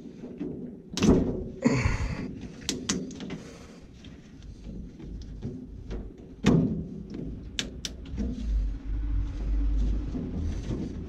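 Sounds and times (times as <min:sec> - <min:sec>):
scraping rustle: 0:03.8 - 0:11.0.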